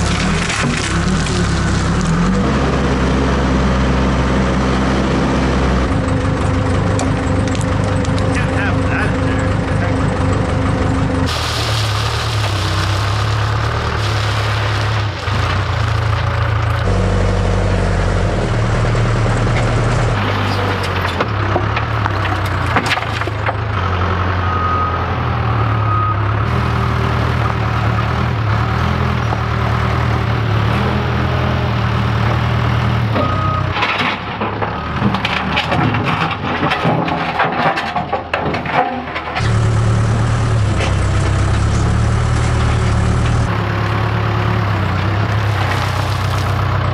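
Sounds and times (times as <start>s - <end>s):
diesel engine running: 0.0s - 46.9s
rock scraping a steel bucket: 11.3s - 16.3s, 45.3s - 46.6s.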